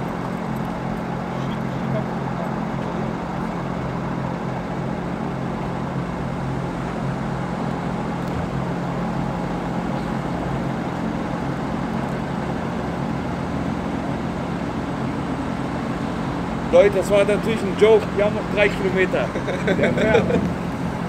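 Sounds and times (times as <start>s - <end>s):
steady vehicle rush and hum: 0.0s - 21.0s.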